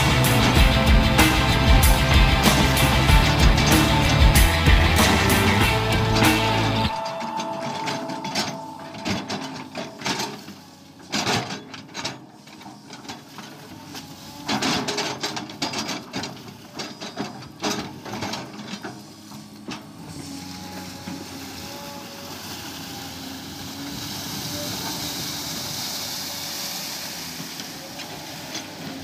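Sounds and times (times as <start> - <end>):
excavator diesel engine running: 0.0 - 29.0
metal bucket clanking and scraping: 2.4 - 21.6.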